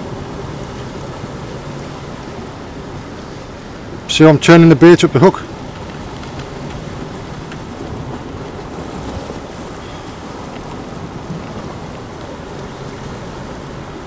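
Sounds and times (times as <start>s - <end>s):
waves washing on rocks: 0.0s - 14.0s
wind buffeting microphone: 0.0s - 14.0s.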